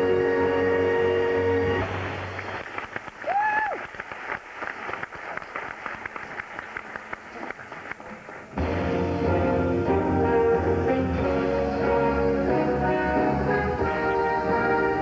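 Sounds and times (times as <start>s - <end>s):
band music: 0.0s - 2.5s, 8.5s - 15.0s
audience applause: 1.8s - 8.6s
whooping cheer: 3.1s - 4.0s.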